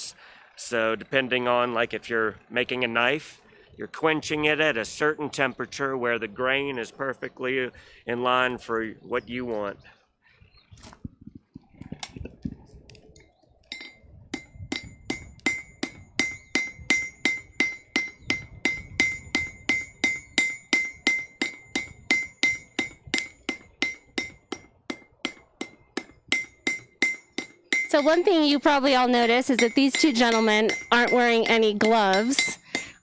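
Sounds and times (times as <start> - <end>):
hammer ringing on anvil: 13.7 - 33.0.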